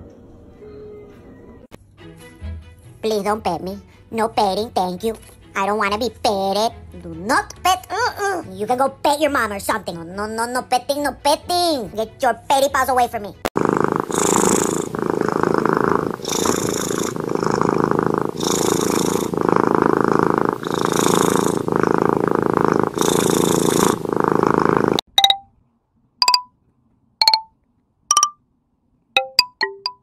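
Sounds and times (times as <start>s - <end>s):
cat purring: 13.5s - 25.1s.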